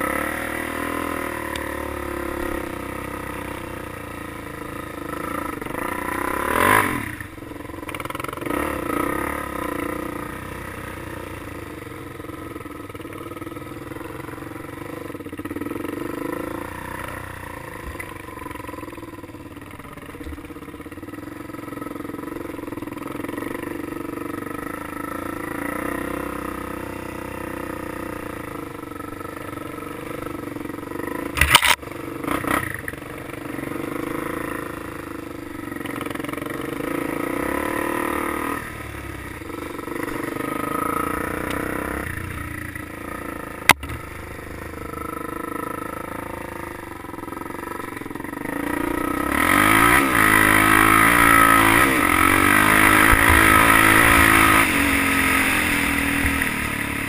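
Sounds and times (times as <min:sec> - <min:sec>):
quad bike engine revving: 0:00.0 - 0:57.0
sharp click: 0:31.4 - 0:31.8.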